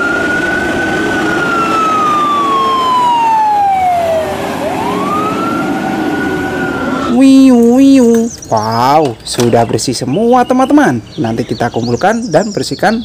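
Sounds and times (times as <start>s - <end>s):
fire truck siren wailing: 0.0s - 8.4s.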